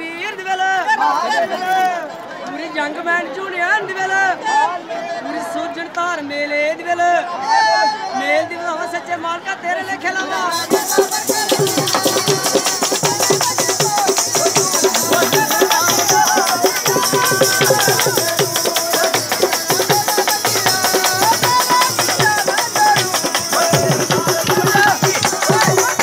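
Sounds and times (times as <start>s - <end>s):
person singing folk melody: 10.2s - 26.0s
jingling rattling percussion: 10.5s - 26.0s
fast drumming: 10.6s - 26.0s.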